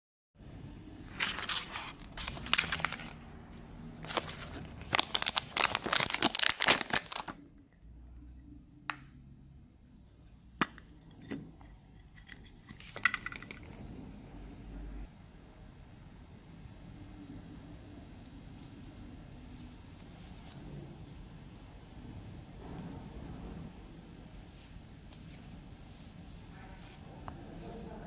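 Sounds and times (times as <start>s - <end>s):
plastic packaging crinkling: 1.1s - 7.5s.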